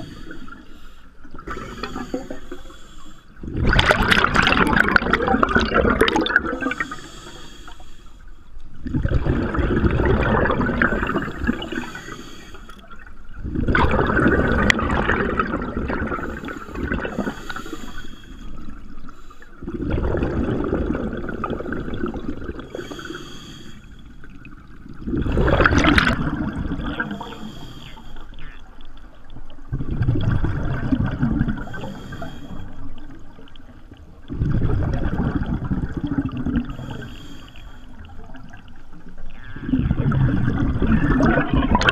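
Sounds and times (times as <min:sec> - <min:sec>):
diver breathing through regulator: 0:00.0 - 0:03.4, 0:06.6 - 0:08.4, 0:10.8 - 0:12.8, 0:16.1 - 0:19.6, 0:22.6 - 0:24.1, 0:27.0 - 0:28.4, 0:31.6 - 0:33.0, 0:36.7 - 0:38.0
exhaled bubbles underwater: 0:00.0 - 0:08.0, 0:08.7 - 0:41.9.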